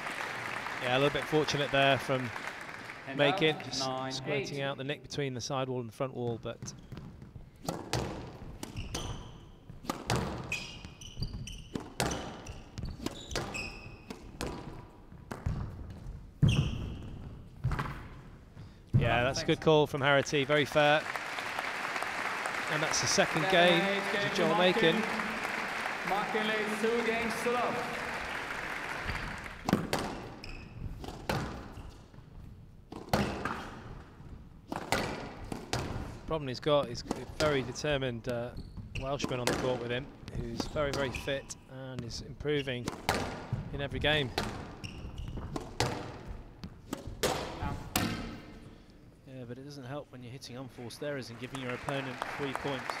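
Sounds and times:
applause: 0.0 - 4.0, 20.2 - 29.7, 51.2 - 53.0
shoes squeaking on court floor: 6.6 - 18.8, 29.1 - 36.1, 38.3 - 41.7, 42.5 - 47.9
squash ball hit by rackets: 7.6 - 9.1, 9.7 - 10.5, 11.8 - 16.6, 29.6 - 31.8, 32.9 - 34.0, 34.7 - 36.2, 42.8 - 43.6, 44.4 - 44.8, 45.4 - 48.5.

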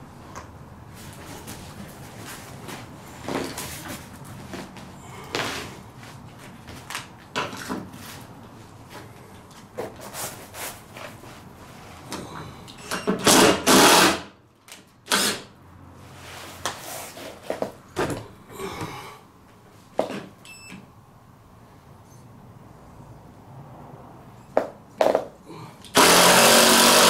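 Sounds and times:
loud scraping rustle: 9.8 - 12.0, 16.0 - 17.7
knocks and handling noises: 16.6 - 19.0, 24.5 - 25.4.

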